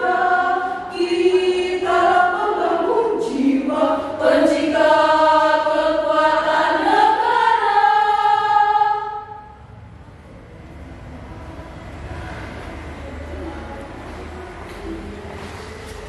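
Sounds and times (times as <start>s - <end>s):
women's choir singing: 0.0s - 9.7s.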